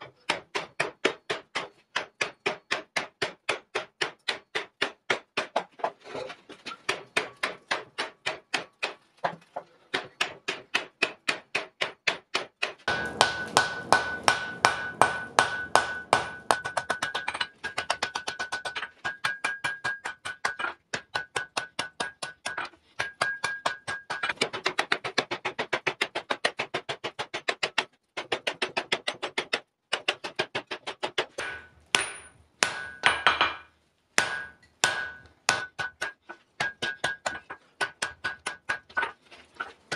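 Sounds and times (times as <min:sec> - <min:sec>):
hammer blows on hot iron: 0:12.9 - 0:16.8
anvil ringing: 0:12.9 - 0:17.1, 0:31.4 - 0:33.6, 0:34.2 - 0:35.3.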